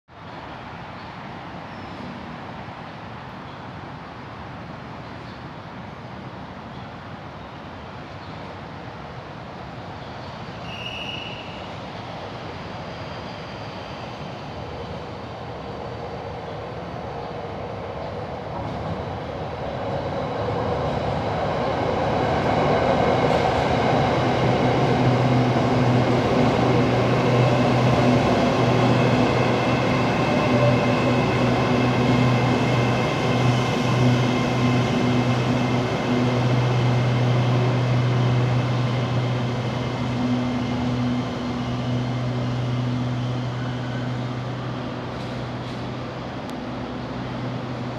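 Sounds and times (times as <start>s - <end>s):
train running noise: 0.2s - 47.9s.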